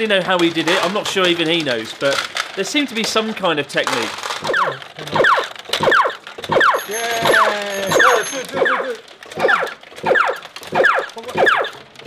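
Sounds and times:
high beeps: 0:04.4 - 0:08.8
stepped electronic tune: 0:04.5 - 0:11.7.

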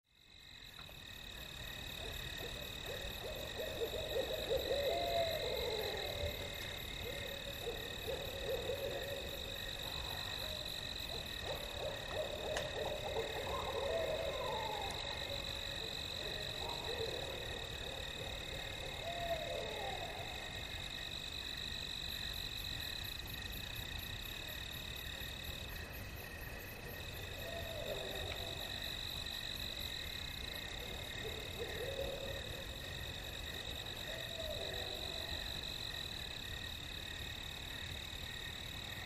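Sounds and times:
owls hooting: 0:02.0 - 0:20.6.

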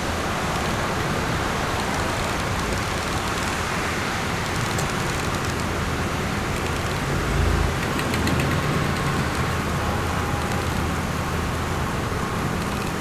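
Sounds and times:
tyres hissing on wet road: 0:00.0 - 0:13.0.

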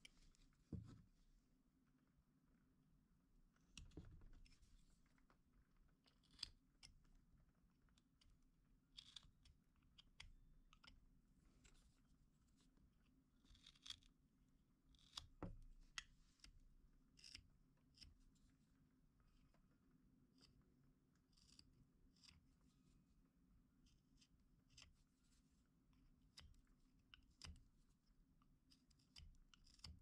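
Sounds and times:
small clicks: 0:07.8 - 0:11.8, 0:28.7 - 0:30.0
knife scraping wood: 0:21.3 - 0:22.4.

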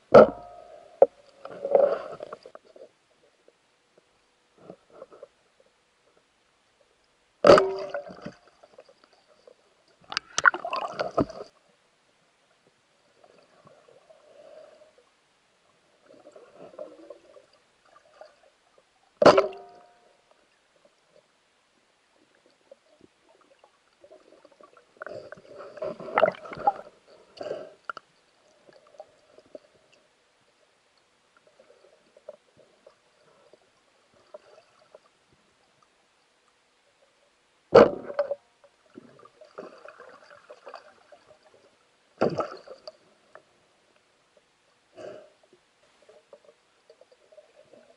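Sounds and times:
underwater gurgling and sloshing: 0:00.0 - 0:47.9.

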